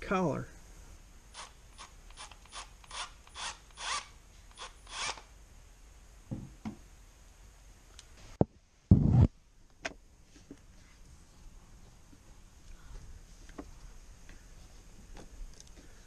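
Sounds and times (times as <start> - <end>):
knocks on tool chest: 6.3 - 6.8
loud thump: 6.3 - 6.8.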